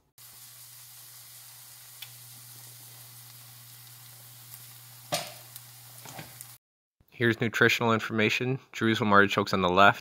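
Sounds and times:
fritters sizzling in oil: 0.1 - 6.6.

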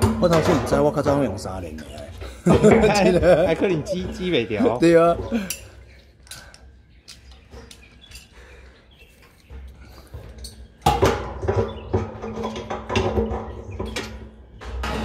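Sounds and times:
metallic clatter and grinding: 9.6 - 15.0.

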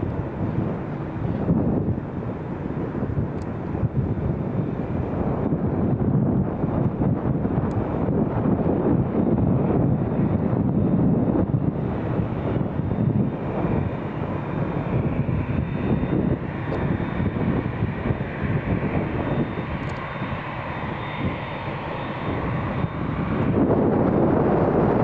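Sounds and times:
jet engines rushing with whine: 0.0 - 25.0.

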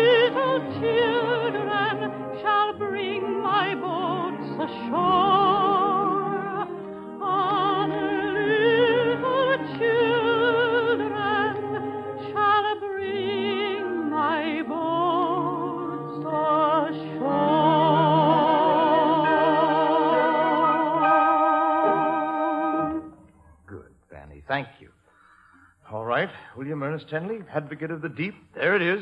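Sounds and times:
soprano singing with vibrato: 0.0 - 23.3
instrumental accompaniment: 0.0 - 23.4.

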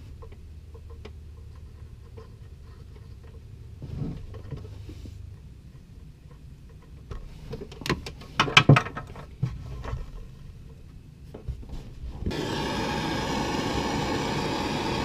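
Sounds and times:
heat gun whirring: 12.3 - 15.0.

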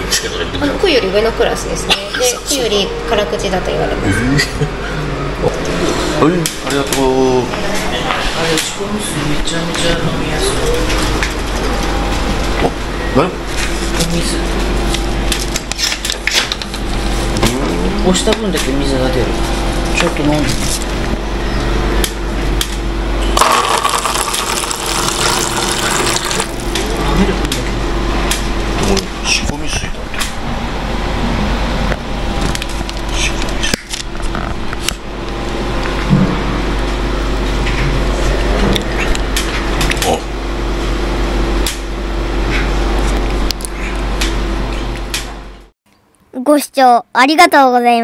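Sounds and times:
low machine hum: 0.0 - 45.7
water pouring into paper cup: 23.4 - 26.8.

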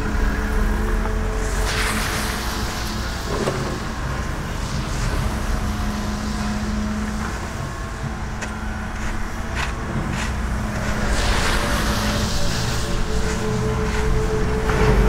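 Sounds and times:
excavator diesel engine drone: 0.0 - 15.0
snow shovel scraping: 9.0 - 15.0.

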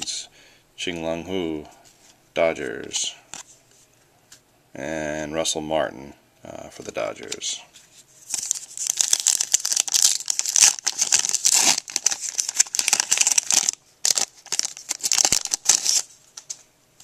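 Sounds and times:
wrapper tearing and crinkling: 8.3 - 16.1.

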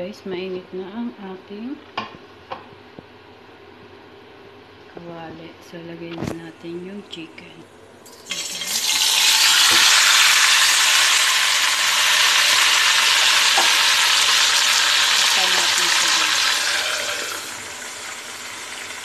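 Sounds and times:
chicken sizzling in hot oil: 8.1 - 19.0.

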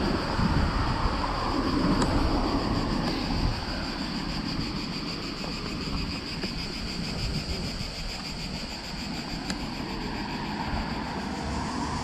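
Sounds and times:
cicadas buzzing: 0.0 - 12.0
wind rumble on microphone: 0.0 - 12.0.

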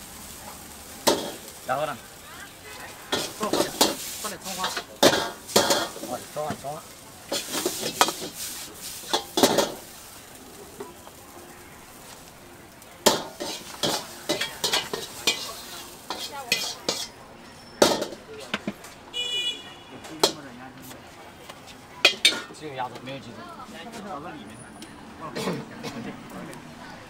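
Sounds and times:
food sizzling: 0.0 - 19.4, 20.0 - 24.4
metal ladle scraping a wok: 1.0 - 1.6, 3.1 - 6.4, 7.3 - 9.9, 13.1 - 18.6, 22.0 - 22.5.

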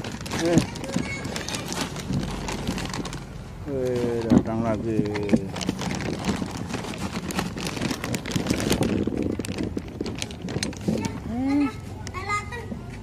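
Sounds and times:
microphone handling rustle: 3.8 - 11.3
wind on microphone: 5.9 - 11.3.

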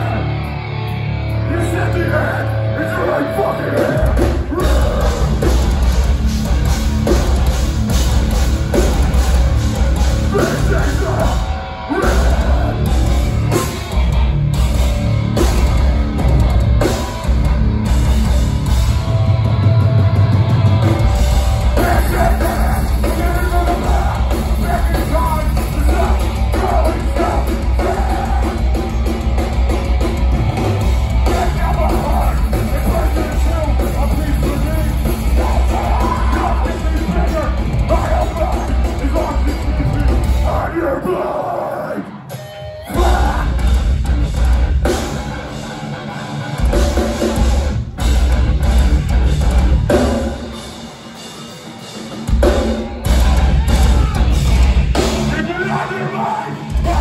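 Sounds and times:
metal band playing live: 0.0 - 57.0
person singing: 3.3 - 5.6, 21.8 - 29.2, 31.2 - 43.7, 55.5 - 57.0.

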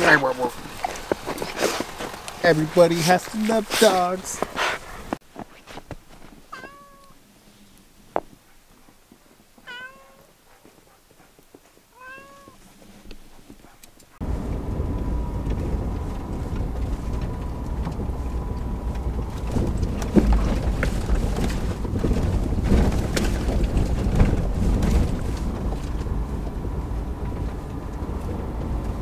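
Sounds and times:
vehicle rumbling on dirt track: 0.0 - 5.3, 12.0 - 29.0
cat meowing: 6.5 - 7.2, 9.6 - 10.3, 11.9 - 12.6.

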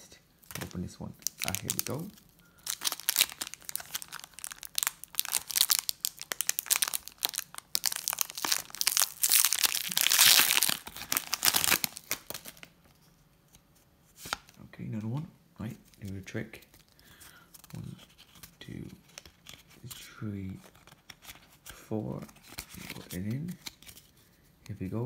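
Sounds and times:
foil wrapper tearing and crinkling: 0.5 - 12.7.

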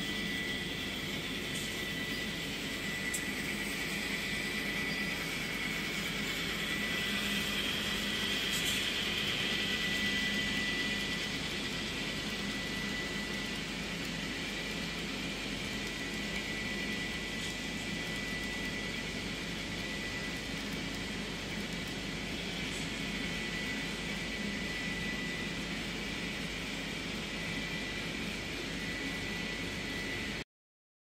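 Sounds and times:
high constant whine: 0.0 - 30.4
model train whirring hiss: 0.0 - 30.4.

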